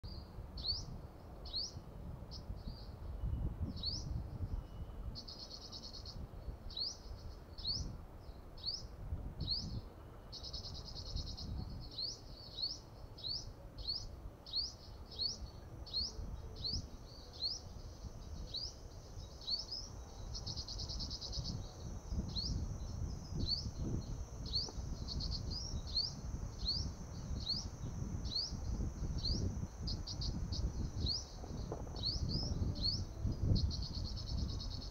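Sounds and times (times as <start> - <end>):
low wind rumble: 0.0 - 34.9
sunbird calling: 0.0 - 34.9
insect buzzing: 13.2 - 34.9.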